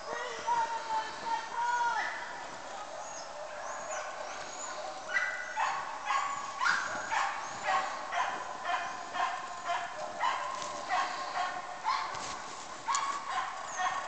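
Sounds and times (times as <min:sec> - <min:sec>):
dog barking: 0:02.8 - 0:14.0.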